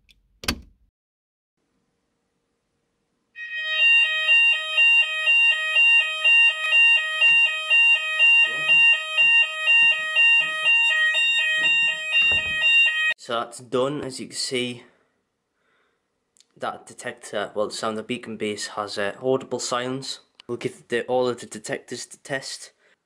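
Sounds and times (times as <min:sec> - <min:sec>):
two-tone fire alarm: 0:03.4 - 0:13.2.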